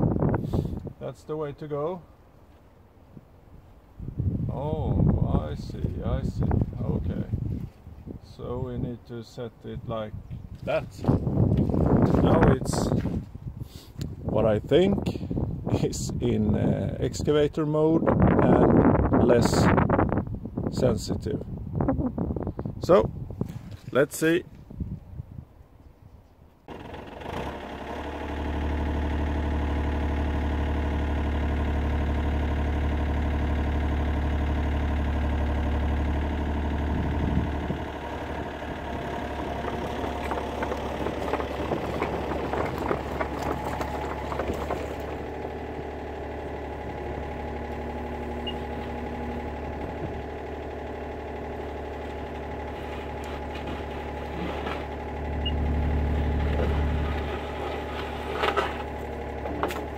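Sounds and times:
diesel engine running: 1.8s - 17.1s, 26.6s - 59.9s
excavator bucket rattling and knocking: 26.7s - 59.9s.

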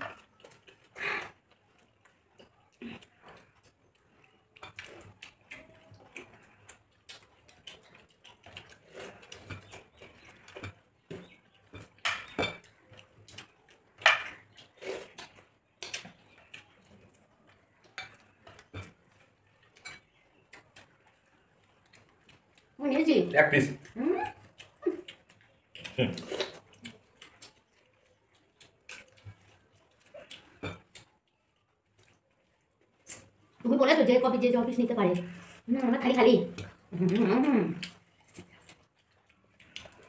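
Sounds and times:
chewing: 0.0s - 40.0s
plates and bowls clinking: 11.8s - 12.7s, 14.0s - 14.4s.

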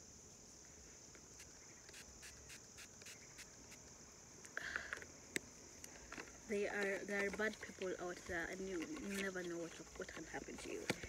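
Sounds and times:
crickets chirring: 0.0s - 11.0s
spray bottle hisses: 1.4s - 3.8s.

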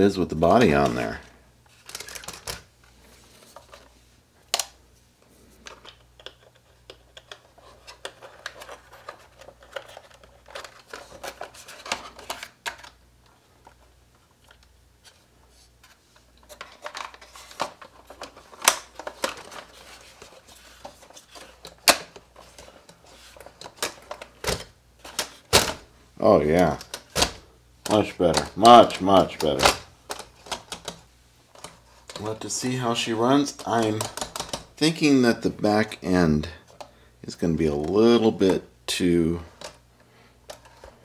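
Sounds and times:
plastic clicks and knocks: 33.6s - 34.7s.

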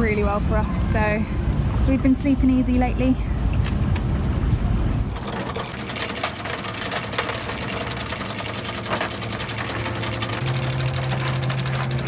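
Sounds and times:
anchor chain rattling: 5.1s - 12.0s.

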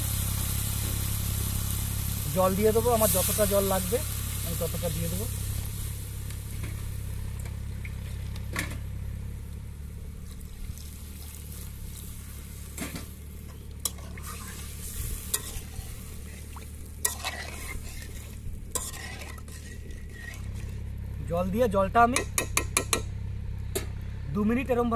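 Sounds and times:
paste sizzling in a pan: 0.0s - 7.8s, 10.8s - 21.0s
spoon stirring and knocking pan: 22.2s - 23.1s.

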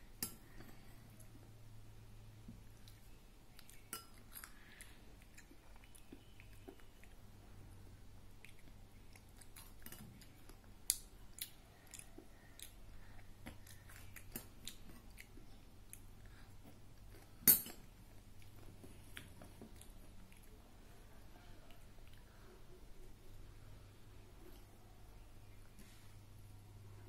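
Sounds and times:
child chewing: 2.5s - 23.6s.

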